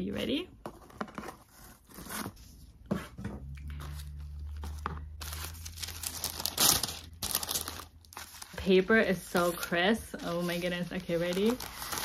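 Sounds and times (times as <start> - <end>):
tissue paper rustling: 3.8 - 12.0.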